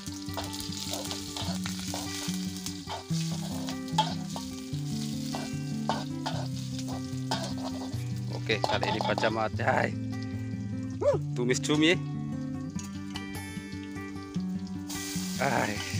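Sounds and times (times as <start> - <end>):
background music low notes: 0.0 - 15.9
food sizzling in hot oil: 0.0 - 15.9
metal spatula scraping a wok: 0.4 - 9.3.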